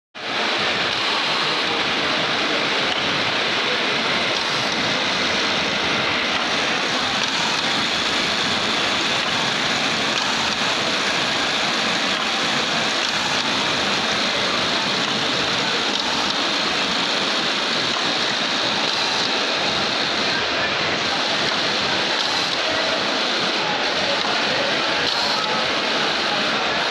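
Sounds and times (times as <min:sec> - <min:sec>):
sewing machinery hiss: 0:00.4 - 0:26.9.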